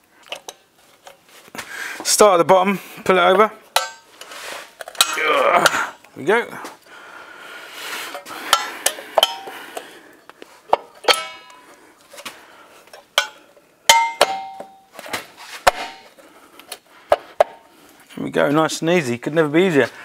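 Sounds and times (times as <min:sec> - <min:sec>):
metal ringing ping: 0:11.0 - 0:11.7, 0:13.2 - 0:14.9.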